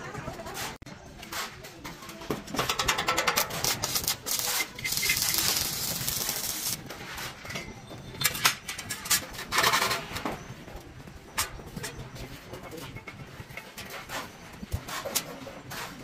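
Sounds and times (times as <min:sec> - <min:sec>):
scraping on a hard surface: 0:12.6 - 0:16.0.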